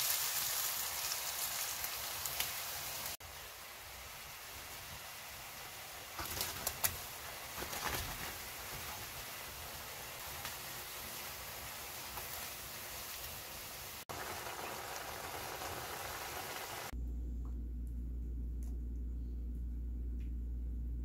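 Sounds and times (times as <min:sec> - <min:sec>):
sauce sizzling in a frying pan: 0:00.0 - 0:16.9
steady low hum: 0:16.9 - 0:21.0.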